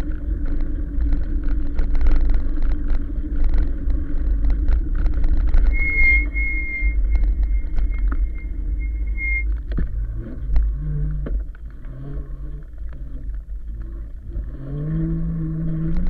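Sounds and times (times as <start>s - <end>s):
low hum: 0.0s - 16.0s
road noise: 0.0s - 16.0s
wind rumble on microphone: 0.0s - 16.0s
thin high whine: 3.0s - 11.2s.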